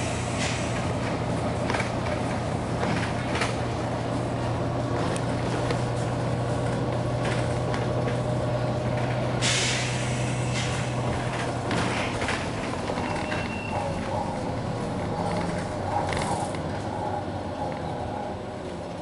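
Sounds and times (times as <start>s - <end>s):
bus diesel engine drone: 0.0s - 19.0s
air system hiss: 9.4s - 11.0s.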